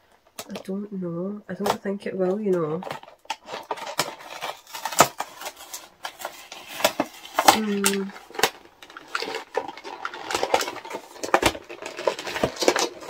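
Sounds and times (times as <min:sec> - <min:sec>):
card tearing: 0:03.2 - 0:13.0.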